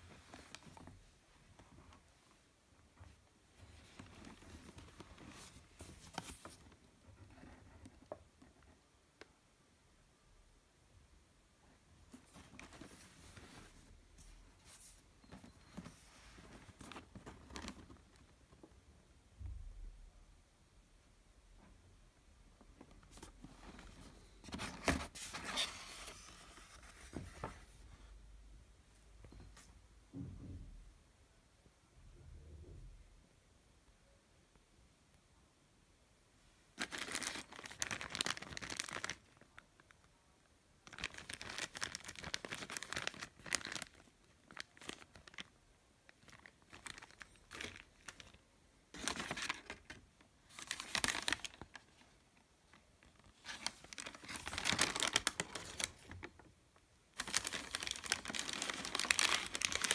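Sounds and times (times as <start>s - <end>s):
tissue paper rustling: 3.6s - 6.8s, 12.1s - 18.0s, 23.1s - 27.7s, 36.8s - 39.4s, 40.8s - 45.4s, 46.2s - 48.4s, 49.0s - 52.0s, 53.2s - 56.3s, 57.2s - 59.9s.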